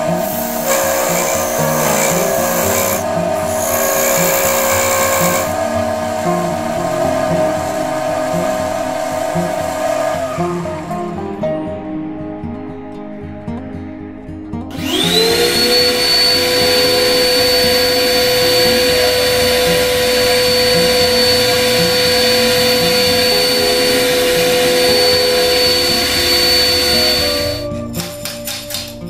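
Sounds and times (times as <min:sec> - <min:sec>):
electric wood lathe whine: 0:00.0 - 0:11.4, 0:14.7 - 0:27.8
background music: 0:00.0 - 0:29.0.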